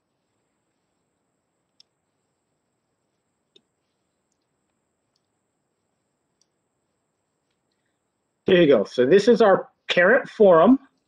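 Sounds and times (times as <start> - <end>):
computer mouse clicks: 1.6 - 2.0, 3.1 - 5.4, 6.3 - 6.6.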